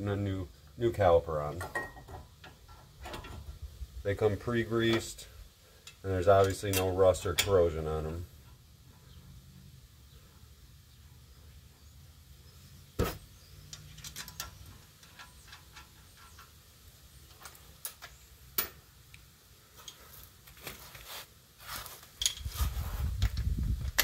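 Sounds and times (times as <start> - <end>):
metal clicks and knocks: 13.7 - 16.6.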